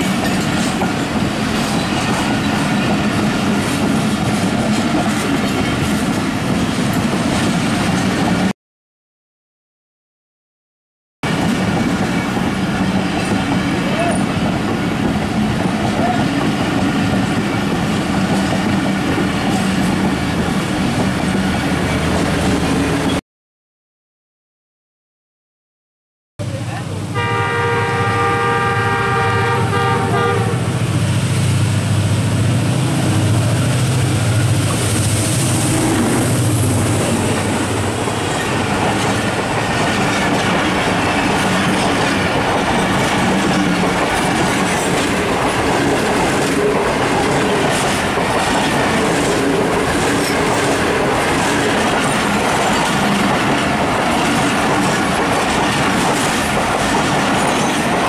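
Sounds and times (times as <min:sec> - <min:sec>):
train wheels clattering over rail joints: 0:00.0 - 0:08.1, 0:37.2 - 0:58.0
locomotive engine rumbling: 0:26.4 - 0:56.0
locomotive multi-tone horn: 0:27.1 - 0:30.8.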